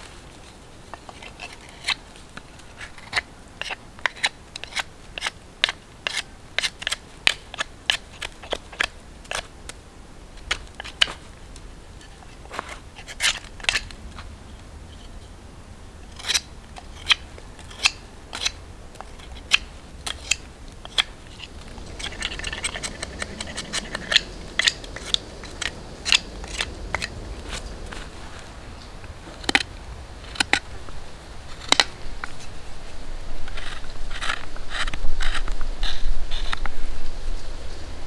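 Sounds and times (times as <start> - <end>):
knife shaving wood stick: 0.0 - 9.8, 10.4 - 15.2, 16.0 - 28.6, 29.2 - 30.7, 33.5 - 36.7.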